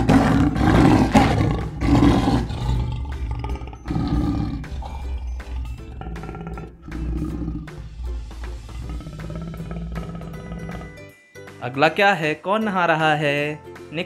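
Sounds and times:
big cat roaring and growling: 0.0 - 11.1
background music: 0.0 - 14.0.

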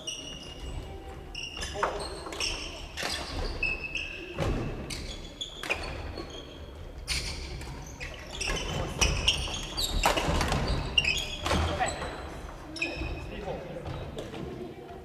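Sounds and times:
shoes squeaking on wooden floor: 0.0 - 14.2.

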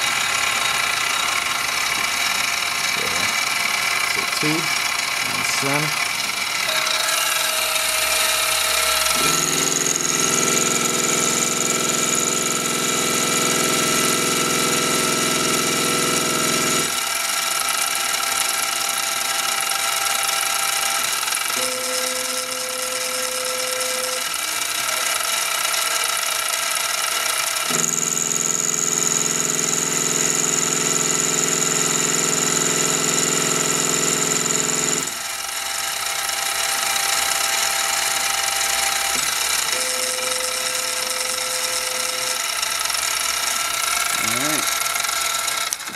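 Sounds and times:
milling machine running: 0.0 - 45.9.

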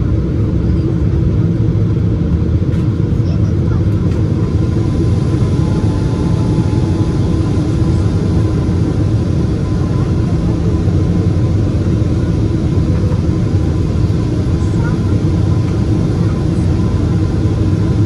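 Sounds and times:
airliner engine rumble: 0.0 - 18.0.

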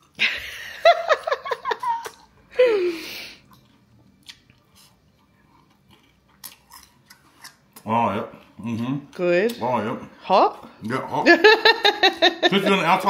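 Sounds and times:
person giggling: 0.2 - 3.0, 11.3 - 13.0
crunchy food being chewed: 3.4 - 9.0.

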